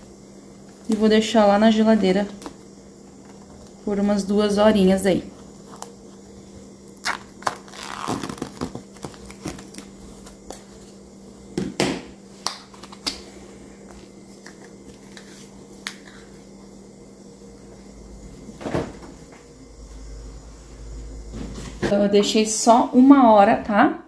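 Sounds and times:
cling film crinkling: 6.9s - 10.4s.

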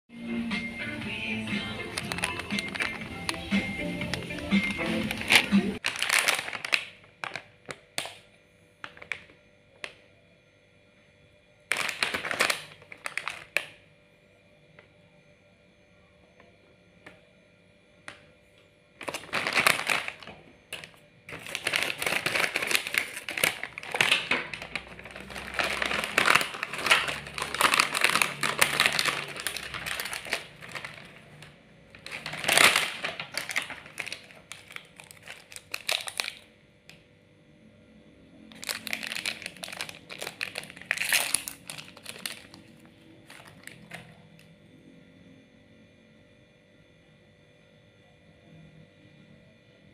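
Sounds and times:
plastic wrappers crinkling: 1.1s - 8.2s, 8.8s - 10.0s, 11.7s - 13.8s, 19.0s - 36.5s, 38.5s - 44.2s.

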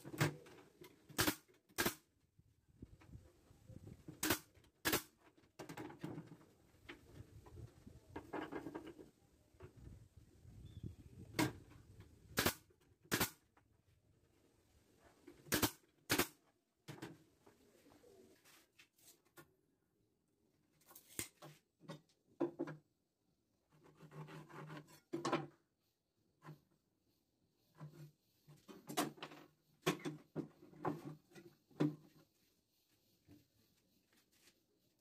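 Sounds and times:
nail gun firing: 1.2s - 2.1s, 4.2s - 5.1s, 12.4s - 13.4s, 15.5s - 16.4s
wood being handled and knocked: 21.4s - 22.9s, 23.8s - 25.6s.

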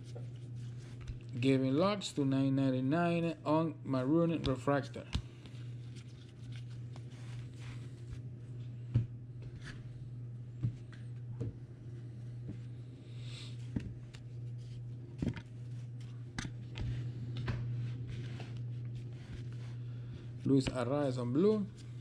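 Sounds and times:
low hum: 0.0s - 22.0s
cards rustling: 4.4s - 8.2s.

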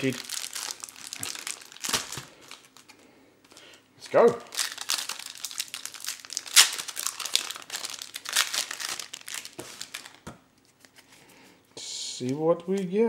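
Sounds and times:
foil pack tearing and crinkling: 0.0s - 2.9s, 4.5s - 10.3s.

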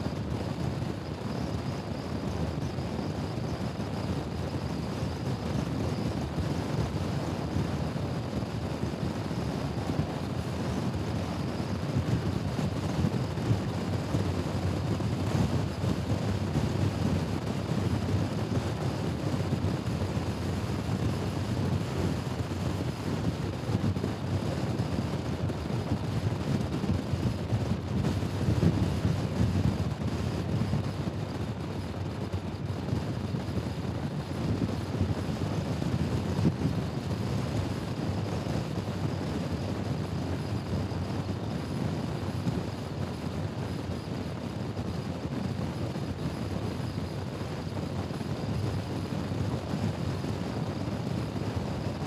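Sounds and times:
wind rushing on microphone: 0.0s - 52.0s.

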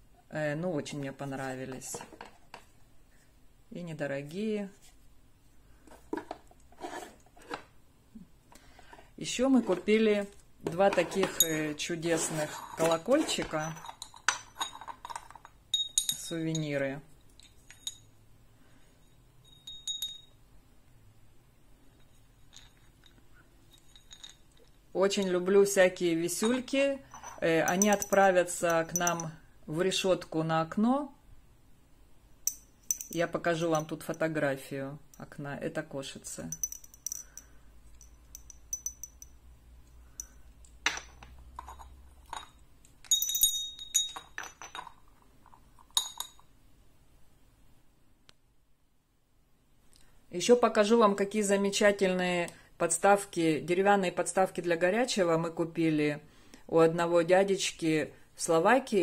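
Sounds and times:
small bell dinging: 15.7s - 18.2s, 19.0s - 20.4s, 27.1s - 29.4s, 32.5s - 33.2s, 36.5s - 40.5s, 42.4s - 44.8s.

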